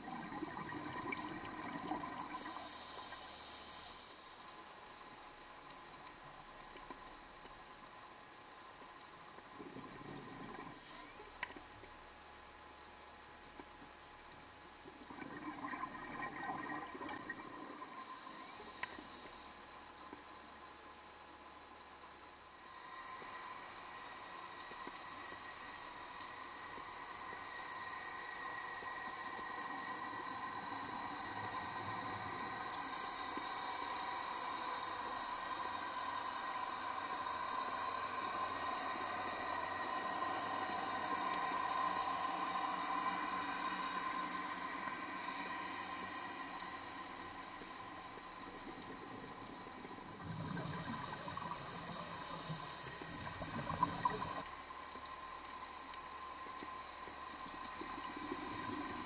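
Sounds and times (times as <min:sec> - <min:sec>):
underwater watery hiss: 0:00.5 - 0:05.0, 0:09.8 - 0:11.1, 0:16.6 - 0:19.7, 0:22.5 - 0:59.0.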